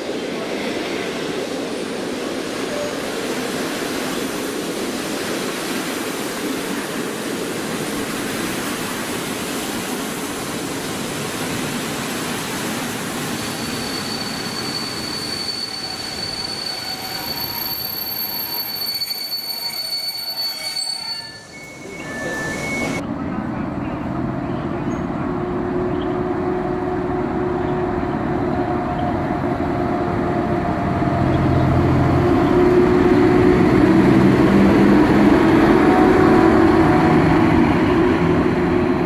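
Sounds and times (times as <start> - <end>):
train wheels rumbling on rails: 0.0 - 39.0
high-pitched brake squeal: 13.3 - 23.0.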